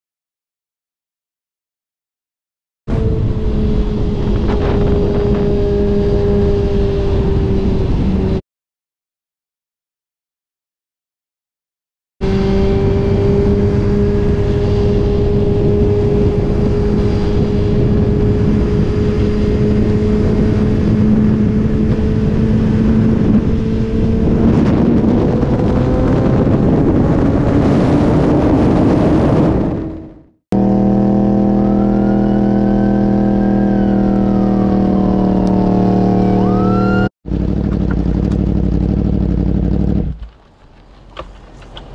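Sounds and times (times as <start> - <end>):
another engine: 2.9 - 8.4, 12.2 - 41.9
motorcycle engine revving hard: 2.9 - 8.4, 12.2 - 40.3
police siren: 2.9 - 8.4, 31.2 - 37.1
steady engine note: 2.9 - 8.4, 12.2 - 40.3
wind rush: 2.9 - 8.4, 12.7 - 30.3.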